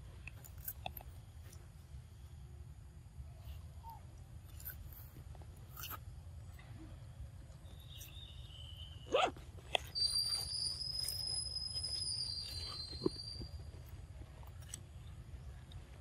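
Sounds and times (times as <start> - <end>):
monkeys chewing with crunching: 0.1 - 1.9, 9.2 - 16.0
short rising squeak: 9.9 - 13.6
steady high whistle: 9.9 - 13.6.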